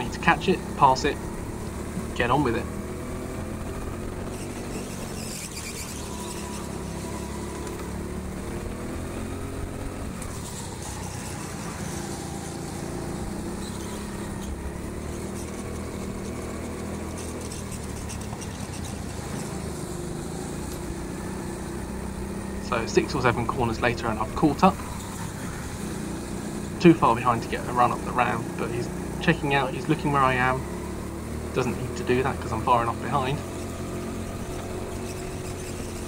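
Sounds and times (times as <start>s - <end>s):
chassis rattles and clicks: 0.0s - 21.0s
go-kart motor: 0.0s - 36.0s.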